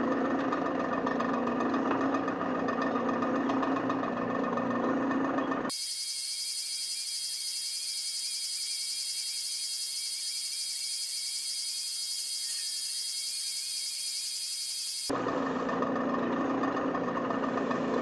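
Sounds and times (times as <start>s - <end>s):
faint wavering tone: 5.7s - 15.1s
shrill high-pitched whine: 5.7s - 15.1s.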